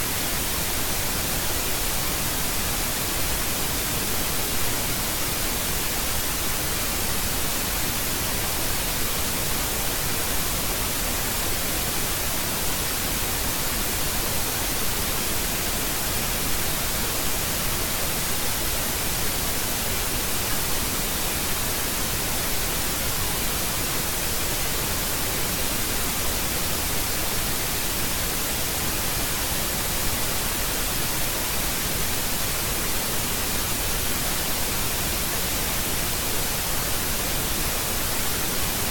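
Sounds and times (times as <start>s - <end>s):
steady static hiss: 0.0s - 38.9s.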